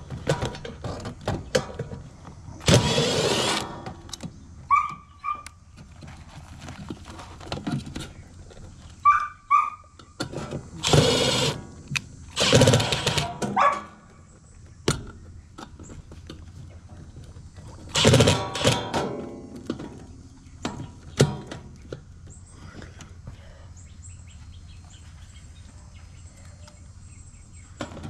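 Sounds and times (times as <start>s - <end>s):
dogs barking: 4.7s - 5.5s, 9.0s - 9.9s, 13.2s - 14.1s
high-pitched dog yelps: 4.7s - 5.5s, 9.0s - 9.9s.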